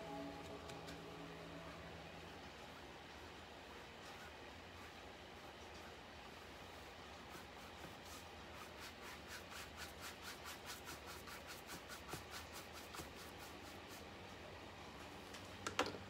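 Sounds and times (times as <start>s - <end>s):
paintbrush scrubbing on canvas: 6.2s - 14.2s.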